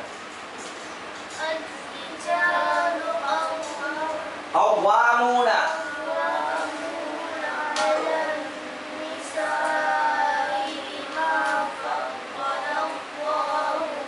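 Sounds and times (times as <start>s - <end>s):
girls chanting melodically: 1.5s - 4.4s, 5.8s - 14.0s.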